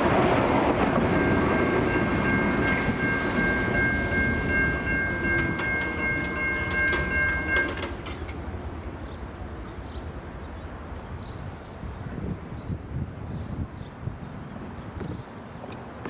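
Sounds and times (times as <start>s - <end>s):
train running noise: 0.0s - 13.2s.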